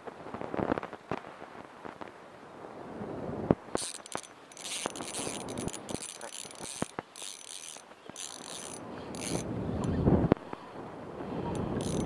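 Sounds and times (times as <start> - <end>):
fishing reel gears whirring: 3.8 - 10.0, 11.5 - 12.0
sharp reel clicks: 3.8 - 10.0, 11.5 - 12.0.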